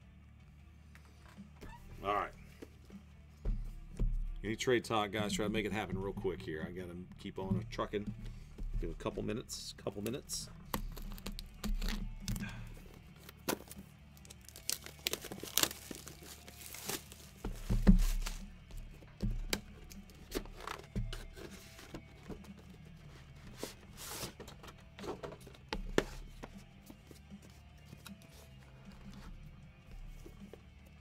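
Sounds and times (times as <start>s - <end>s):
plastic shrink-wrap tearing: 13.2s - 17.4s
cardboard box knocks and rustles: 15.6s - 22.5s.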